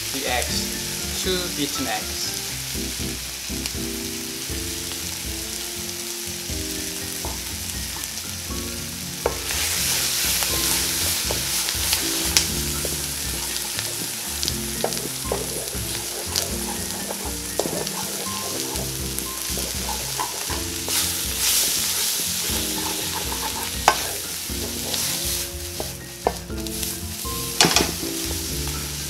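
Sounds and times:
eggs sizzling in a wok: 0:00.0 - 0:29.0
spoon knocking against pan: 0:10.6 - 0:25.0, 0:27.6 - 0:28.0.

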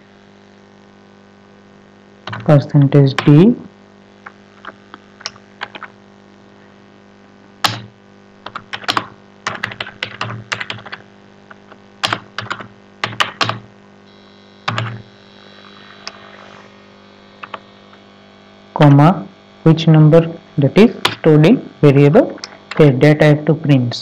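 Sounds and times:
steady low hum: 0:00.0 - 0:24.0
computer keyboard typing: 0:02.3 - 0:02.5, 0:04.2 - 0:05.9, 0:07.6 - 0:13.7, 0:14.7 - 0:15.0.

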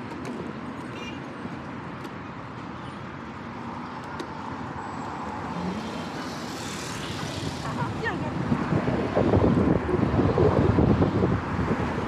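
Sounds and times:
traffic noise: 0:00.0 - 0:12.0
wind rush: 0:06.4 - 0:12.0.

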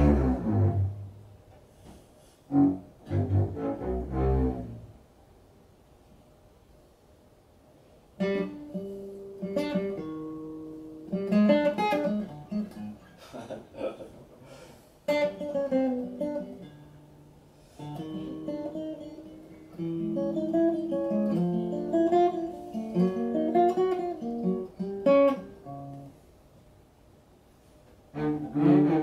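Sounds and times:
acoustic guitar playing: 0:00.0 - 0:01.3, 0:02.5 - 0:04.9, 0:08.2 - 0:13.1, 0:15.1 - 0:26.2, 0:28.1 - 0:29.0.

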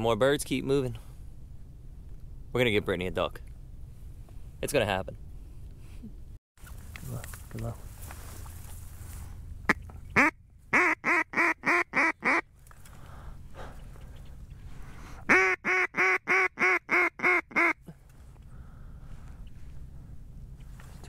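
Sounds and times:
duck call quacks: 0:09.7 - 0:12.4, 0:15.3 - 0:17.9.

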